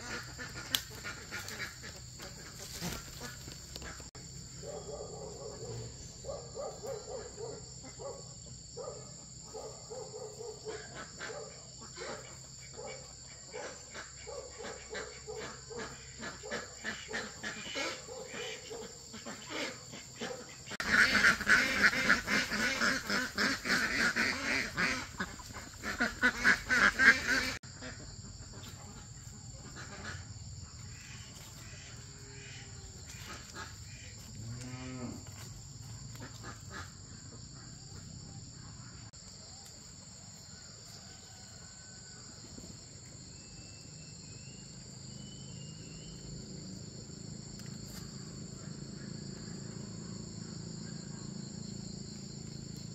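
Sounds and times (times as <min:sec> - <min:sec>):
ducks quacking: 0:00.0 - 0:05.8, 0:09.6 - 0:34.3, 0:36.0 - 0:39.1
insects droning: 0:00.0 - 0:52.9.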